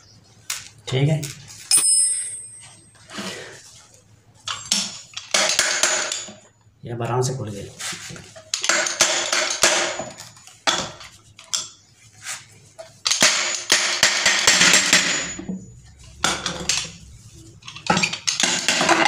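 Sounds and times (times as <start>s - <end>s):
metal tools clanking on metal: 1.6s - 3.0s, 17.6s - 19.0s.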